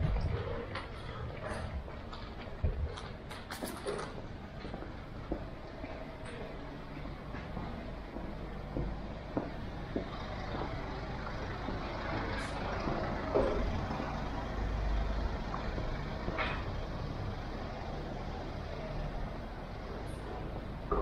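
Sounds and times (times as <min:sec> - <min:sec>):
large vehicle engine rumbling: 0:00.0 - 0:21.0.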